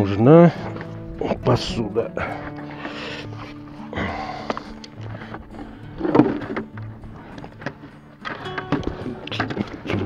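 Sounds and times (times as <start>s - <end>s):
plastic bucket knocks and clunks: 6.0s - 6.9s, 7.6s - 10.0s.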